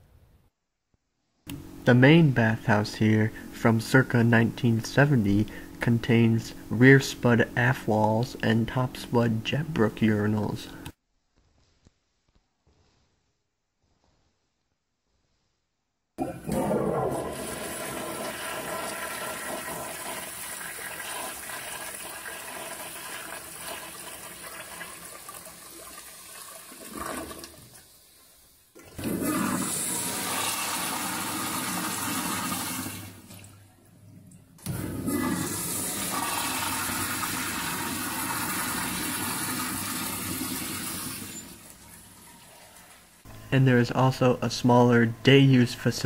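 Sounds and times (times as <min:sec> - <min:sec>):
toilet flushing: 0:16.2 - 0:43.3
urinals flushing: 0:16.2 - 0:43.3.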